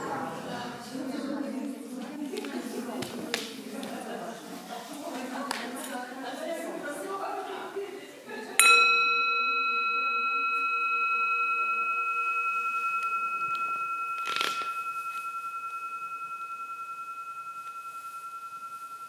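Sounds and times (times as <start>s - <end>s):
singing bowl ringing: 8.6s - 19.0s.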